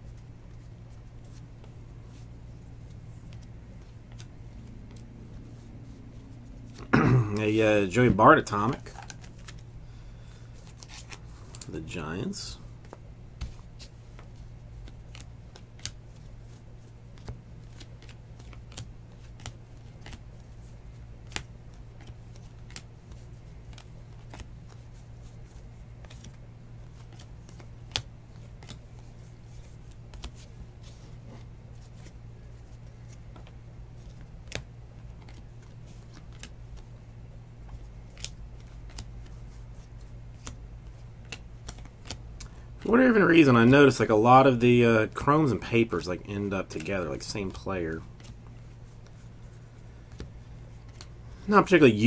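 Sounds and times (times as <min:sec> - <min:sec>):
steady low hum: 0:00.0 - 0:52.0
cards clicking and snapping: 0:12.8 - 0:16.3, 0:17.1 - 0:20.2, 0:21.2 - 0:24.8, 0:26.0 - 0:28.9, 0:33.3 - 0:36.9, 0:37.7 - 0:39.4, 0:40.4 - 0:42.6.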